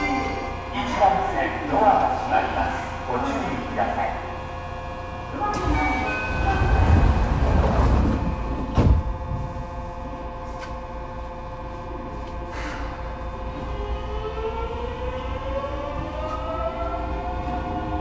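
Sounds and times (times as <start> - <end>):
train equipment hum with tones: 0.0 - 18.0
sliding doors shutting: 5.5 - 9.4
door thump: 8.7 - 9.1.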